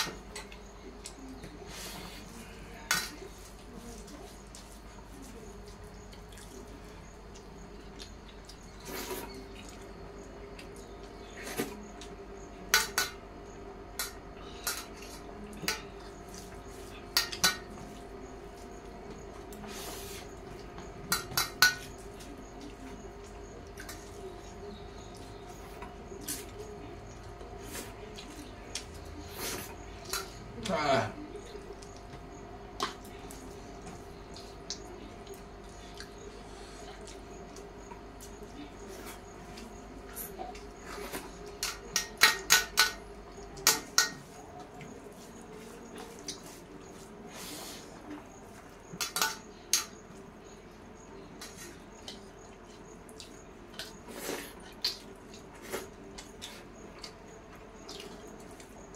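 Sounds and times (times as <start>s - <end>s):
mouths chewing and smacking: 31.4s - 41.6s, 51.6s - 58.9s
fingers mixing wet rice: 31.6s - 48.8s.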